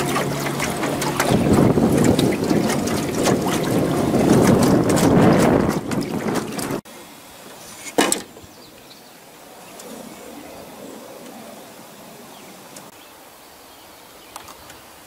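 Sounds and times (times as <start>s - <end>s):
water slapping against a hull: 0.0s - 6.8s
wind buffeting microphone: 0.0s - 6.8s.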